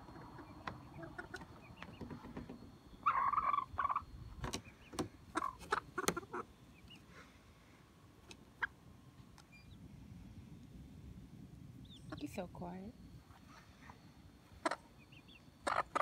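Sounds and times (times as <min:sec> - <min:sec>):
hens calling: 0:00.0 - 0:02.2, 0:03.0 - 0:07.1, 0:14.5 - 0:16.0.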